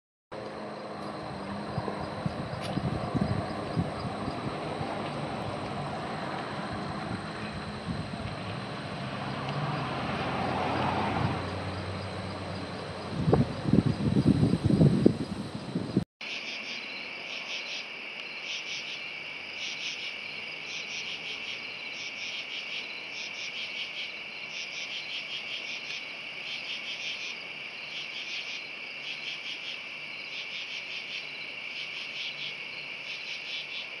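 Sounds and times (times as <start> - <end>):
low rumbling wind-like noise: 0.4 - 16.0
crickets chirring: 0.4 - 34.0.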